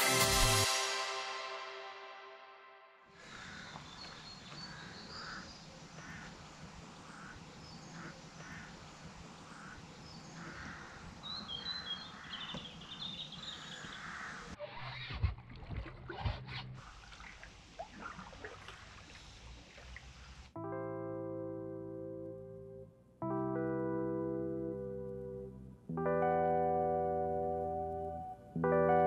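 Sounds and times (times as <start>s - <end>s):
birds calling: 3.2s - 15.2s
paddling water: 3.2s - 20.6s
high bird chirps: 9.5s - 15.0s.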